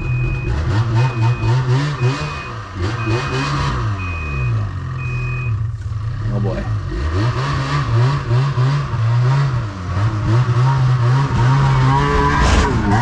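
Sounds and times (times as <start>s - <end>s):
snowmobile engine revving: 0.0s - 5.2s, 6.0s - 13.0s
backup alarm beeping: 0.0s - 5.7s.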